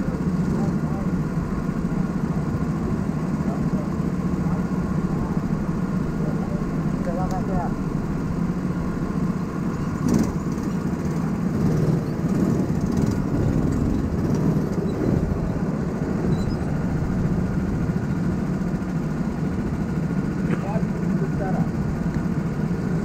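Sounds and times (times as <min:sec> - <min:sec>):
go-kart engines idling: 0:00.0 - 0:23.0.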